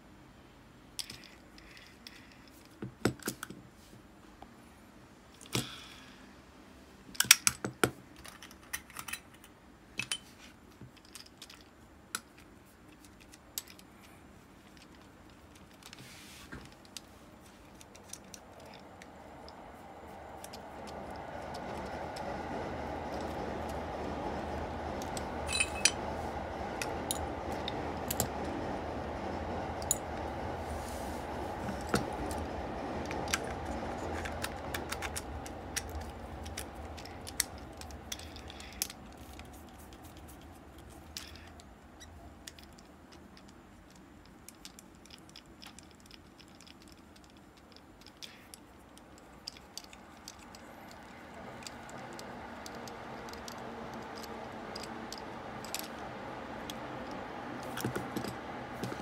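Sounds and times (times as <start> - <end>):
metal clicks of reel parts: 1.0 - 3.6
steady hum: 11.7 - 45.0.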